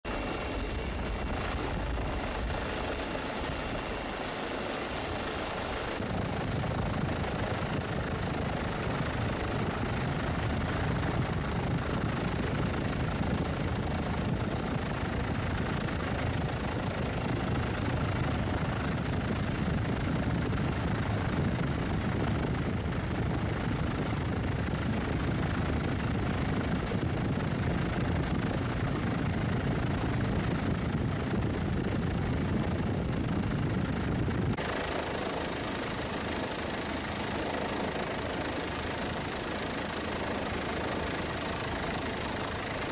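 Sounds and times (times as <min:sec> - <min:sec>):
helicopter engine and rotor drone: 0:00.0 - 0:42.9.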